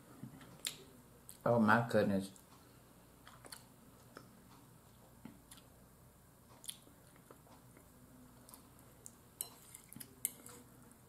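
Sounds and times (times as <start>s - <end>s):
low room hum: 0.0s - 11.0s
person chewing food: 3.2s - 5.8s, 6.4s - 11.0s.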